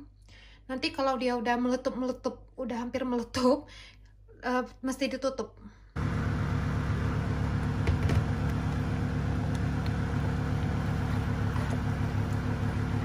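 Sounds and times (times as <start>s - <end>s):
low hum: 5.9s - 13.0s
thick puree boiling and spluttering: 6.0s - 13.0s
wooden spoon stirring: 9.8s - 13.0s.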